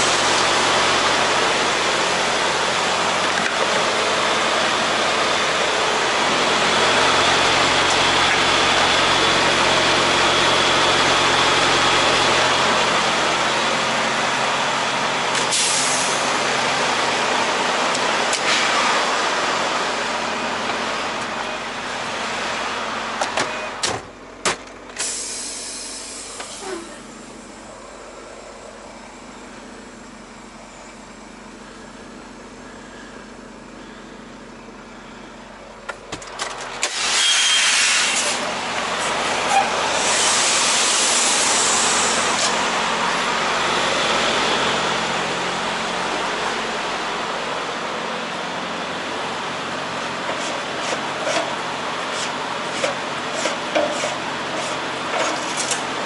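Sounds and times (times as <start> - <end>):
vehicle rushing hiss: 39.6 - 45.2.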